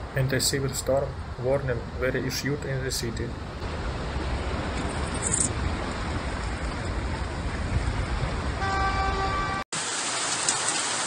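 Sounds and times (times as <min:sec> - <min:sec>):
rushing floodwater: 0:00.0 - 0:11.0
car horn honking: 0:08.6 - 0:09.7
heavy rain hissing: 0:09.8 - 0:11.0.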